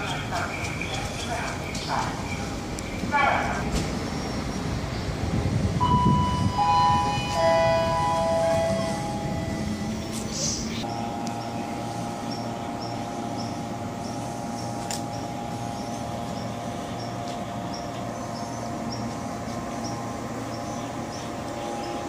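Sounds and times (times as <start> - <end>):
electric train humming: 0.0 - 22.0.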